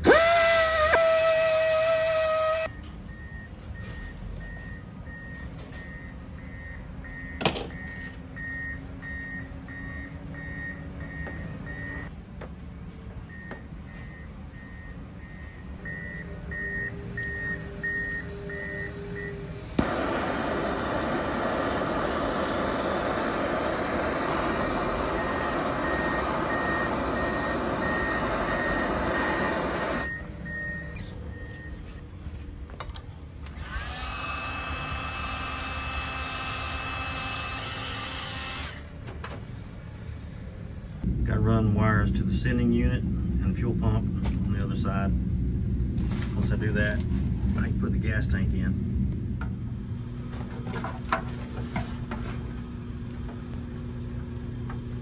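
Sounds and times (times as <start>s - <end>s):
gas torch hissing: 0.0s - 2.7s, 19.6s - 30.1s.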